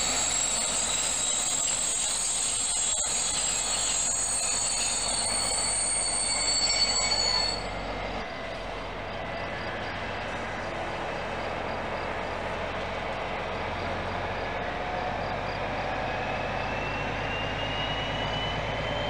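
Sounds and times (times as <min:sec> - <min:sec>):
high-pitched squealing whine: 0:00.0 - 0:19.0
train rumbling past: 0:00.0 - 0:19.0.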